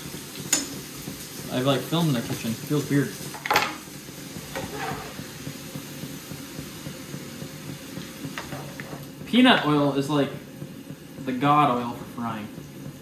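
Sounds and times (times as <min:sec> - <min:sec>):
fries sizzling in oil: 0:00.0 - 0:13.0.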